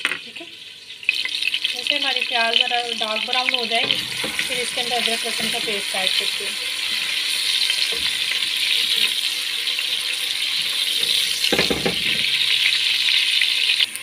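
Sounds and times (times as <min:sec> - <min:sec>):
onions sizzling in hot oil: 0:00.1 - 0:14.0
spatula stirring in a pot: 0:03.9 - 0:13.8.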